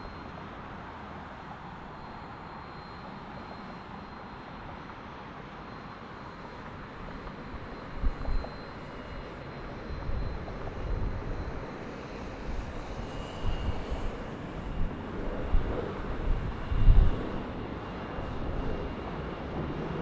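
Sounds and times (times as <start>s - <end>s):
distant jet airliner: 0.0s - 20.0s
wind buffeting microphone: 9.9s - 20.0s.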